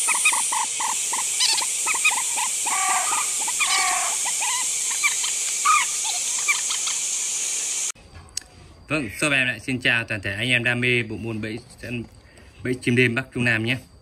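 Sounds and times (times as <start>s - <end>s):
marsh birds calling: 0.0s - 7.2s
steady hiss: 0.0s - 14.0s.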